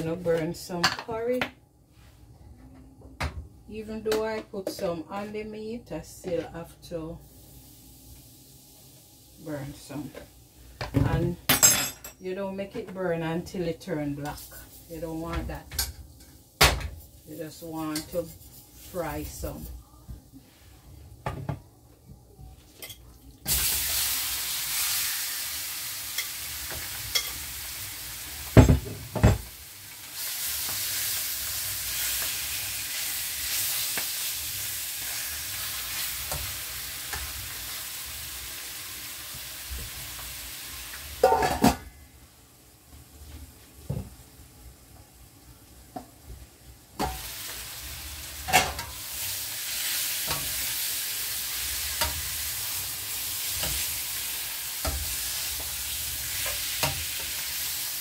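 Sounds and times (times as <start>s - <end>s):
chicken frying in hot oil: 23.4s - 41.2s, 47.2s - 58.0s.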